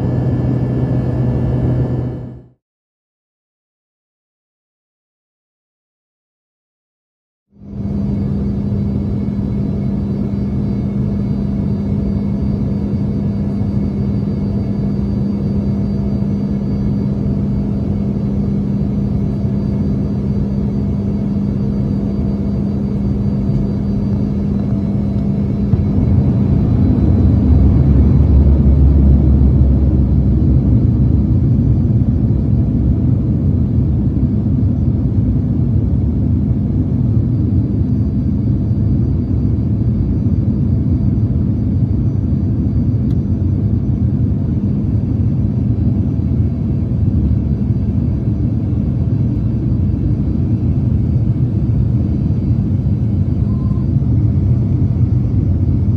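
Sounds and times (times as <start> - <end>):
steady cabin hum: 0.0 - 2.5, 7.8 - 34.5
jet engine rumble and airflow: 0.0 - 2.6, 7.6 - 55.9.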